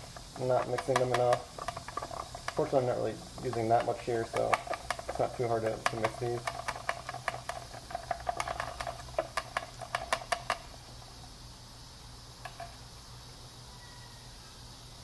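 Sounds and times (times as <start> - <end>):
stick scraping plastic cup: 0.0 - 10.7.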